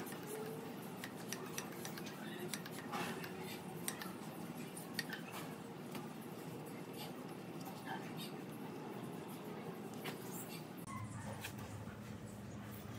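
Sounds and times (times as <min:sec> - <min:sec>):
light metallic clicks and taps: 0:00.1 - 0:04.2.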